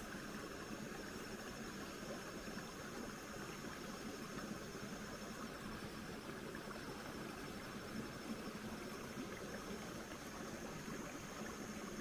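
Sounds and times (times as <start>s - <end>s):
faint outdoor background hiss: 0.0s - 12.0s.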